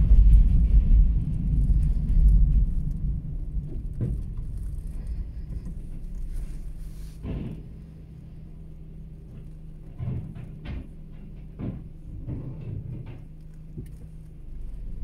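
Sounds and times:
car driving rumble: 0:00.0 - 0:15.0
low engine hum: 0:00.0 - 0:15.0.

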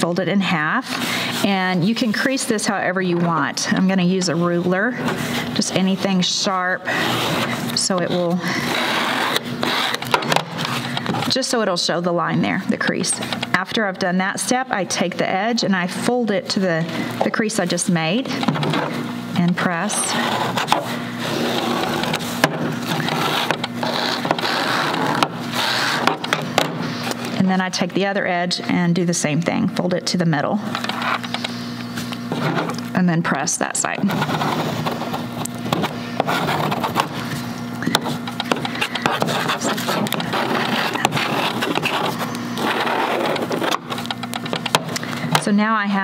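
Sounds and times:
steady low hum: 0:00.0 - 0:46.0
plastic ruler scraping fabric: 0:04.1 - 0:11.0, 0:19.6 - 0:26.3, 0:34.0 - 0:37.2, 0:38.0 - 0:44.1.

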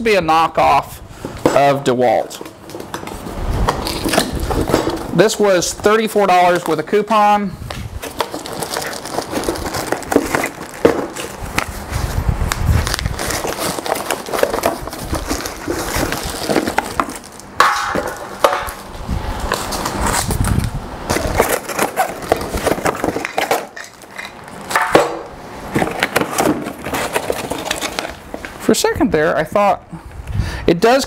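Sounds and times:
cardboard and plastic rustling: 0:01.2 - 0:07.1, 0:07.7 - 0:28.7
parts clattering on metal stand: 0:16.5 - 0:18.9, 0:21.1 - 0:28.2.

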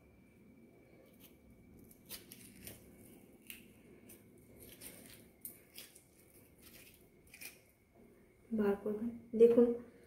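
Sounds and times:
metal spoon scraping potato: 0:01.0 - 0:07.7.

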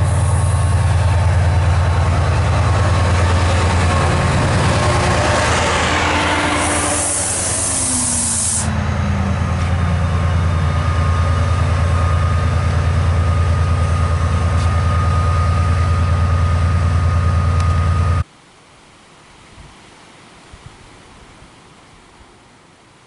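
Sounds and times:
locomotive air hiss: 0:00.0 - 0:01.0, 0:06.0 - 0:08.8
falling whine: 0:00.0 - 0:18.2
thin high whistle: 0:06.4 - 0:08.7.

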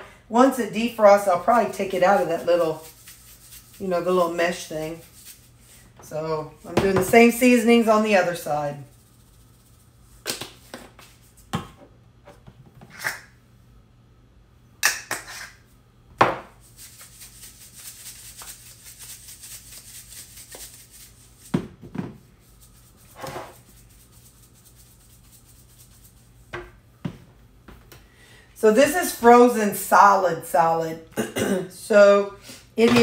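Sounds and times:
spice shaker rattling: 0:01.6 - 0:05.8, 0:08.7 - 0:11.4, 0:16.6 - 0:21.5, 0:22.4 - 0:26.4.

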